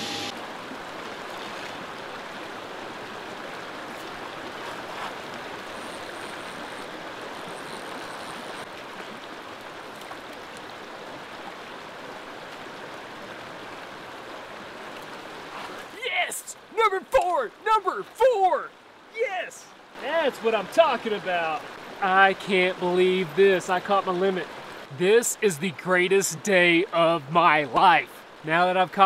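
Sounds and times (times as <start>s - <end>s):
creek water rushing over rocks: 0.3s - 29.0s.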